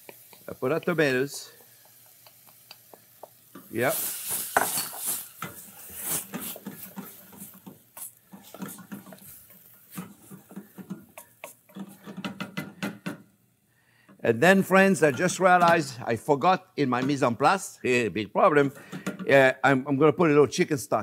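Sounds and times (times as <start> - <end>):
wooden spoon scraping saucepan: 3.6 - 12.8.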